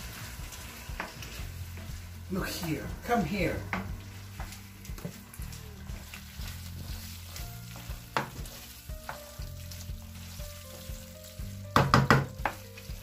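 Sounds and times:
spoon stirring pasta in pan: 0.0s - 13.0s
spoon knocking against pan: 11.7s - 12.6s.

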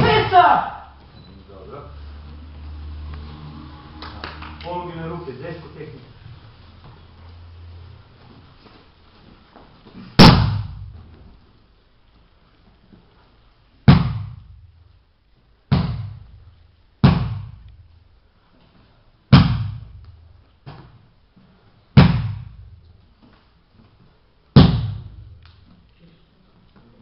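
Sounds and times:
slaps and thuds on padded mats: 9.6s - 11.4s, 13.8s - 14.7s, 15.7s - 17.9s, 19.3s - 21.1s, 21.9s - 23.5s, 24.5s - 25.8s.

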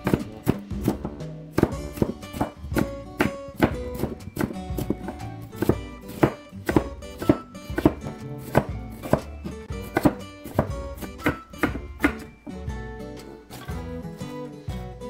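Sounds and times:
knife chopping on plastic board: 0.0s - 12.3s
light background music: 0.0s - 15.0s.

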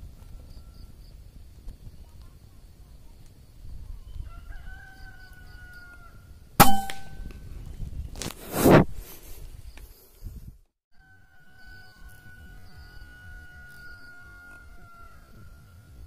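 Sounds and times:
rooster crowing: 4.2s - 6.2s, 11.0s - 15.9s
air rifle shot: 6.6s - 7.4s.

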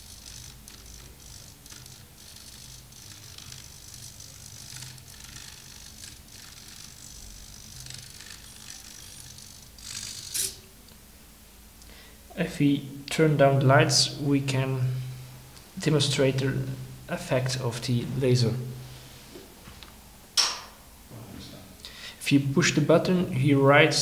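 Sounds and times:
servo motors whirring: 0.0s - 10.6s.

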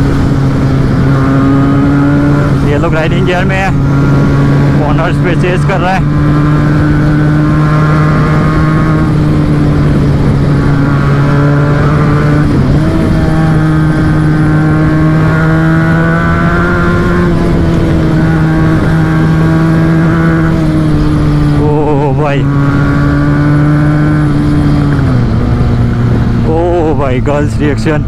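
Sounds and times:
motorcycle engine cruising: 0.0s - 28.0s
rushing wind: 0.0s - 28.0s.

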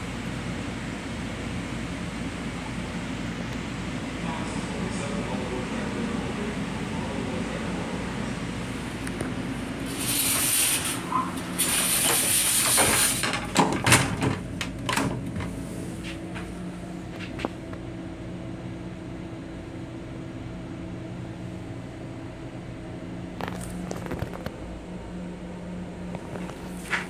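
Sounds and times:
railcar hum: 0.0s - 27.0s
sliding door hissing: 8.8s - 14.3s.

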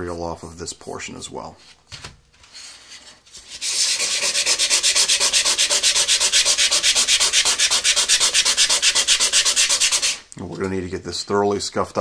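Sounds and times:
fast sanding strokes: 3.3s - 10.3s.

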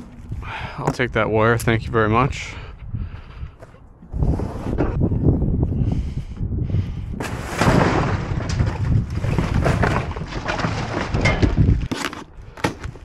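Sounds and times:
cardboard boxes crunching: 8.7s - 13.0s.

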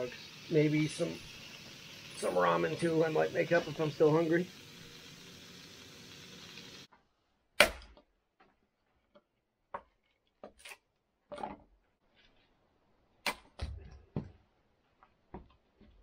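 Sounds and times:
axe chopping firewood: 7.6s - 8.0s.

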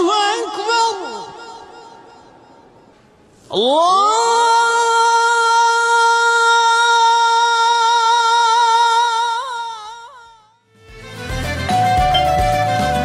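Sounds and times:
man chanting call to prayer: 0.0s - 2.6s.

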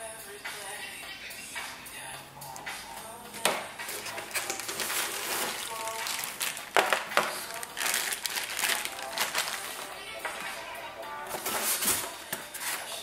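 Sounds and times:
cardboard box rustling: 3.9s - 9.8s, 11.3s - 12.8s
plastic bag crinkling: 3.9s - 10.1s.

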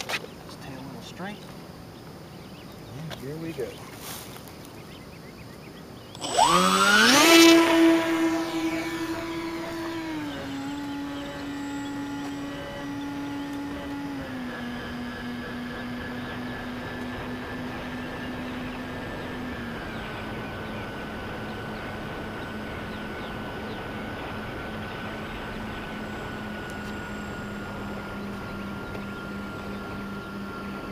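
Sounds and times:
model plane motors droning: 0.0s - 30.9s.

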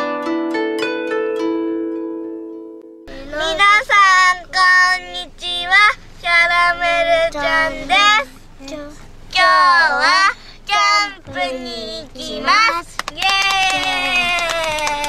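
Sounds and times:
plucked string music: 0.0s - 3.6s
young child singing: 3.1s - 15.0s.

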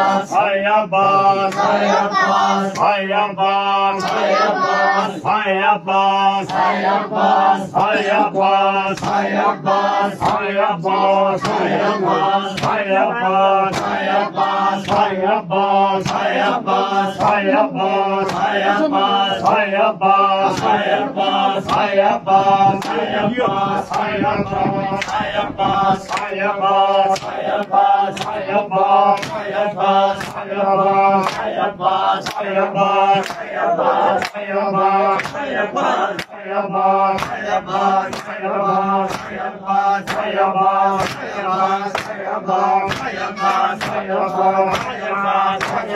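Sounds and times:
men chanting in unison: 0.0s - 45.9s
chest-beating slaps: 7.7s - 9.3s, 10.2s - 10.6s, 11.4s - 12.9s, 13.7s - 14.1s, 14.8s - 15.2s, 16.0s - 16.5s, 17.1s - 19.7s, 20.5s - 20.9s, 21.6s - 22.0s, 26.0s - 28.4s, 29.1s - 30.4s, 31.2s - 31.6s, 33.1s - 33.6s, 35.1s - 35.5s, 37.1s - 37.5s, 39.0s - 39.4s, 40.0s - 42.2s, 42.9s - 45.9s.

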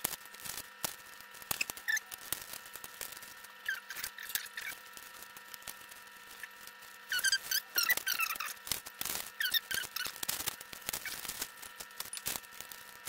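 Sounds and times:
short squeaks: 1.5s - 2.2s, 3.6s - 4.8s, 7.1s - 8.6s, 9.4s - 10.2s.

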